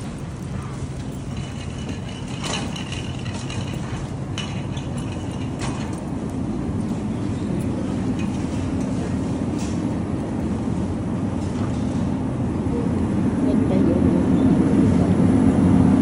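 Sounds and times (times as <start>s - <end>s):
metal cart rattling: 0.0s - 10.5s
cart wheels rumbling on concrete: 0.0s - 12.2s.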